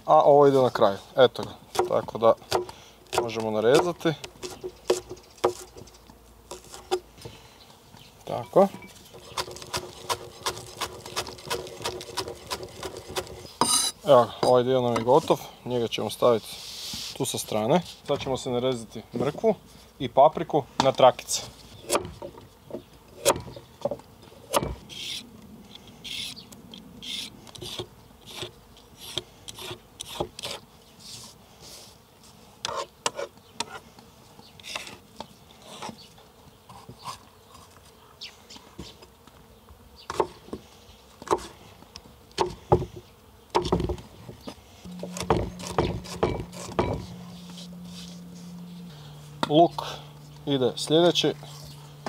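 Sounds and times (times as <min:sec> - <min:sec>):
insect buzzing: 0:03.8 - 0:14.4, 0:21.4 - 0:52.0
knife chopping on cutting board: 0:45.2 - 0:47.0.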